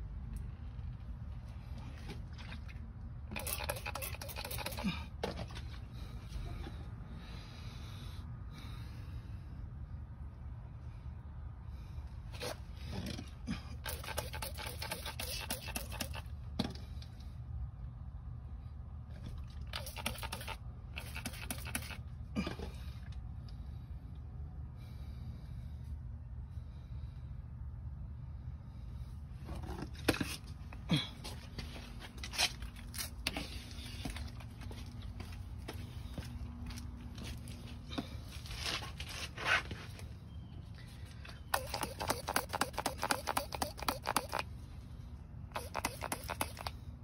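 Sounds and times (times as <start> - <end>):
steady low rumble: 4.8 - 13.9, 22.0 - 39.2
handling scrapes and clicks: 12.4 - 16.3, 41.5 - 44.5, 45.5 - 46.8
footsteps on concrete: 31.2 - 40.1.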